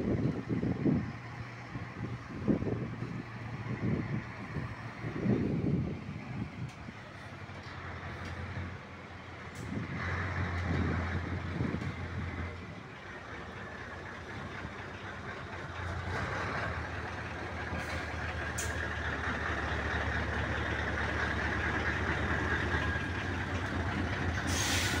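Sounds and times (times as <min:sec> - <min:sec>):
diesel lorry engine: 0:00.0 - 0:25.0
short hiss: 0:24.5 - 0:25.0.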